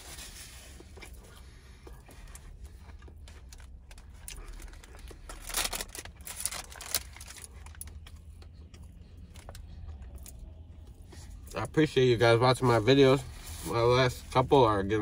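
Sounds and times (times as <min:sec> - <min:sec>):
low hum: 0:00.0 - 0:13.7
paper wrapper crinkling: 0:03.3 - 0:08.4.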